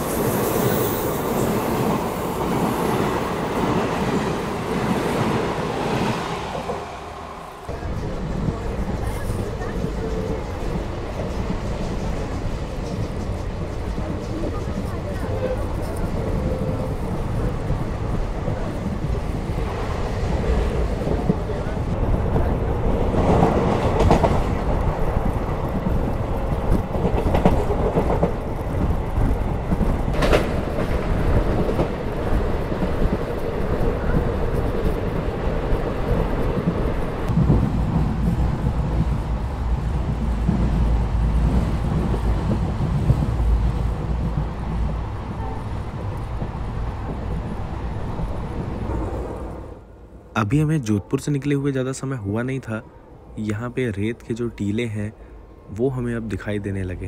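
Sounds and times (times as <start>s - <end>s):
train rumble: 0.0s - 57.0s
train wheels clattering on rails: 7.7s - 49.5s.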